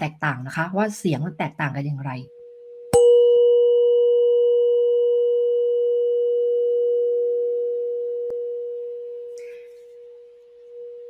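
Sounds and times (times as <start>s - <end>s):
tuning fork ringing: 2.3s - 11.0s.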